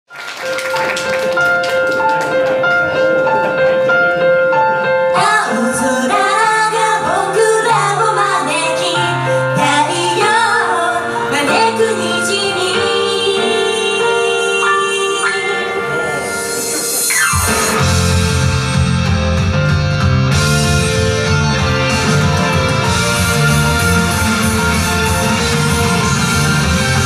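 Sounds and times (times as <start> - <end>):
pop backing track: 1.3 - 27.0
woman singing: 5.2 - 15.7
keyboard held notes: 12.9 - 27.0.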